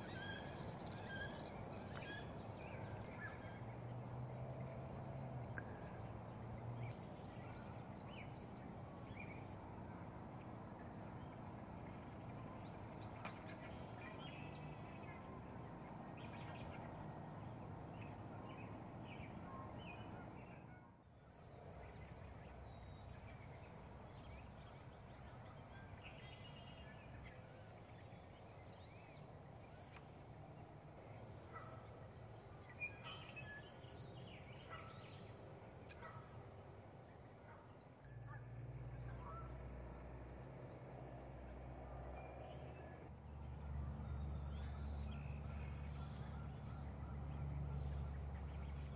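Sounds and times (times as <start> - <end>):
bird calls and chirps: 32.6 - 36.6.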